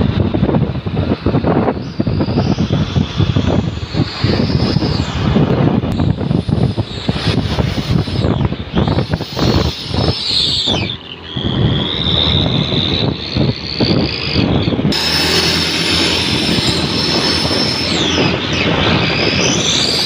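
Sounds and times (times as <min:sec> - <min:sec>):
engine rumble revving: 0:00.0 - 0:20.0
exhaust whistle: 0:01.5 - 0:20.0.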